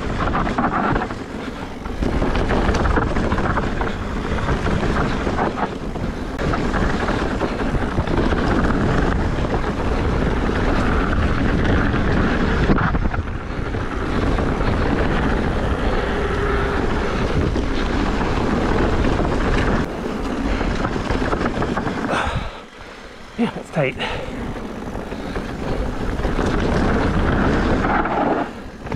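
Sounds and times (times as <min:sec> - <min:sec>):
tyres rumbling over dirt trail: 0:00.0 - 0:28.9
wind buffeting microphone: 0:00.0 - 0:28.9.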